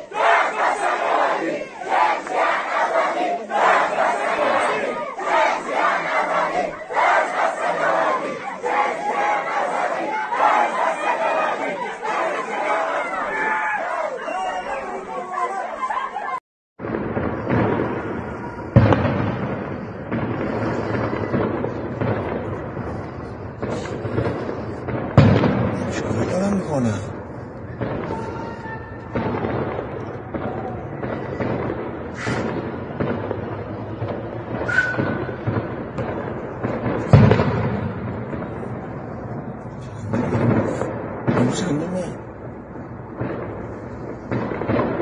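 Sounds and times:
gunshots with echoing rumble: 16.8 - 28.4, 29.0 - 45.0.

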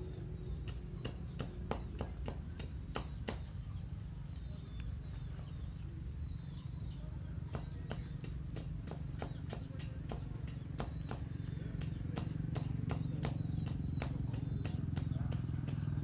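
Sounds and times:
blade chopping bamboo: 7.5 - 16.0.

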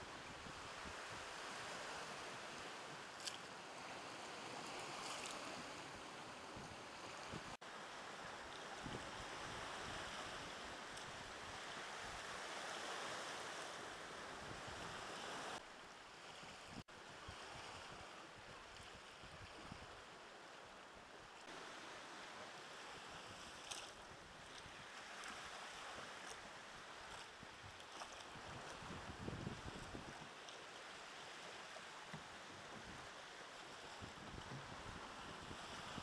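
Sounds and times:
surf lapping against rocks: 0.7 - 13.8.

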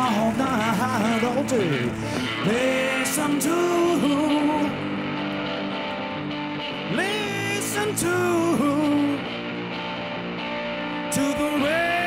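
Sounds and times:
man singing gospel song: 0.0 - 4.8, 6.9 - 9.3, 11.1 - 12.0
keyboard accompaniment: 0.0 - 12.0.

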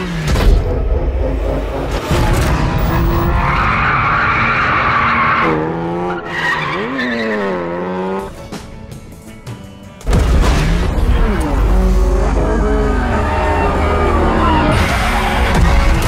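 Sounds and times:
car engine revving: 0.0 - 8.4, 10.5 - 16.0
car tyres squealing: 2.7 - 7.9, 12.3 - 16.0.

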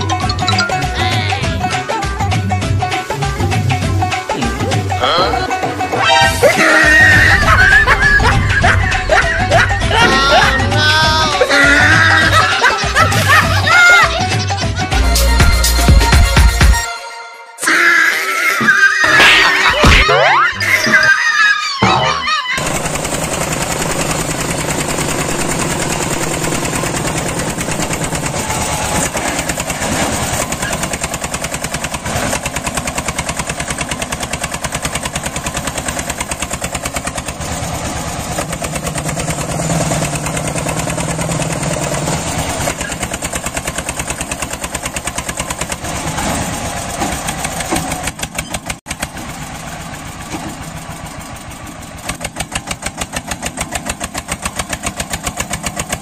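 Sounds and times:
small engines chugging: 0.0 - 16.5, 20.7 - 56.0.

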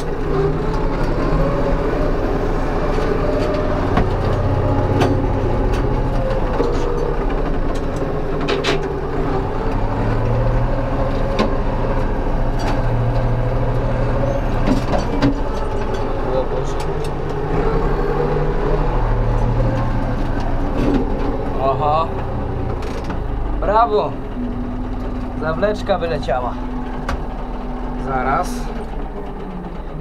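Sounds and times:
mower mulching prunings: 0.0 - 30.0
tractor engine running: 0.0 - 30.0.

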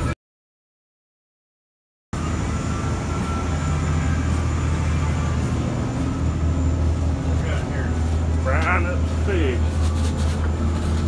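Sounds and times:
boat engine drone: 2.2 - 11.0.

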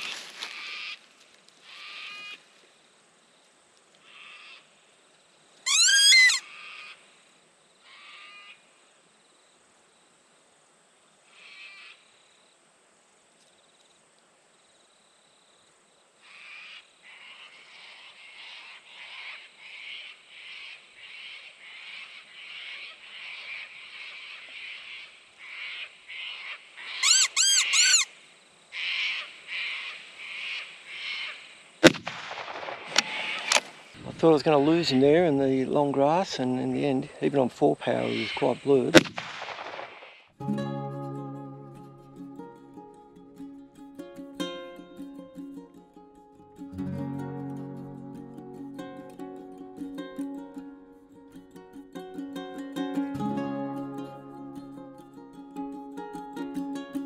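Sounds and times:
fox call squeals: 5.6 - 6.5, 27.0 - 28.1
quick pulsed squeaks: 5.7 - 6.4, 27.0 - 28.1.

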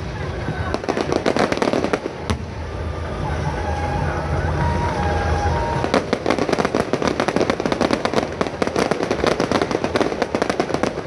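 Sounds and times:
fireworks crackling pops: 0.0 - 11.0.

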